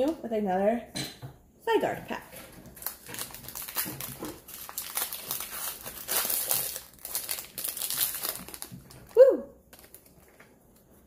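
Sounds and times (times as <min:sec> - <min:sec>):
foil wrapper crinkling and tearing: 0:02.3 - 0:11.0.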